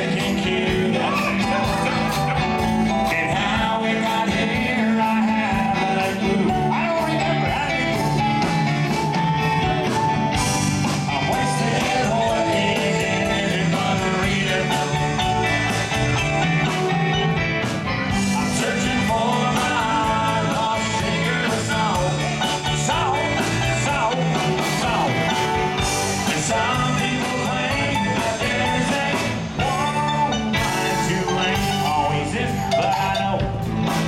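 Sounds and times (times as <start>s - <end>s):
country-rock band playing: 0.0s - 34.0s.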